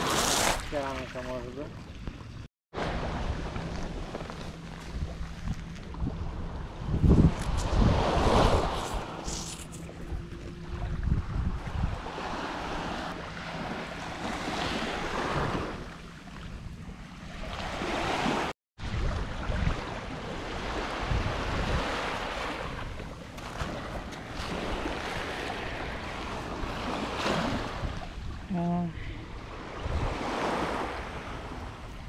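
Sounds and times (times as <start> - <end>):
sea waves washing onto beach: 0.0 - 1.6
wind rumbling on microphone: 1.9 - 28.5, 29.3 - 32.0.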